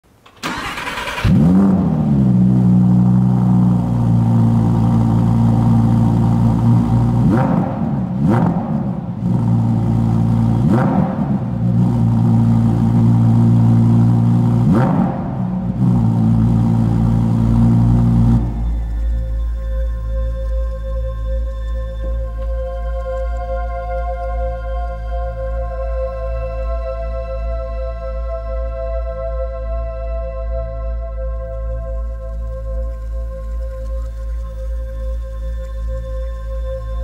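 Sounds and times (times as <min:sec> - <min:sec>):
car engine starting and idling: 0:00.0 - 0:26.0, 0:30.5 - 0:37.0
engine revving: 0:00.4 - 0:19.2.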